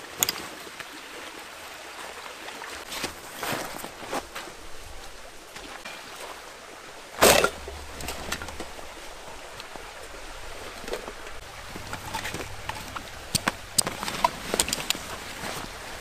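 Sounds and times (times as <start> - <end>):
gear rustling on dry leaves: 7.8 - 16.0.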